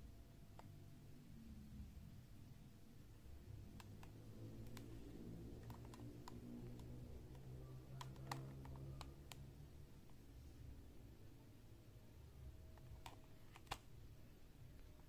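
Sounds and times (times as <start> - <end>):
faint low hum: 0.0 - 15.0
plastic blister pack clicking: 5.6 - 9.4, 12.8 - 13.8.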